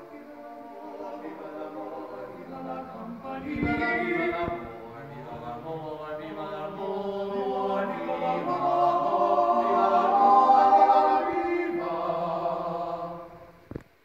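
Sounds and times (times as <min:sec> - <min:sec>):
male vocal quartet singing: 0:00.0 - 0:13.6.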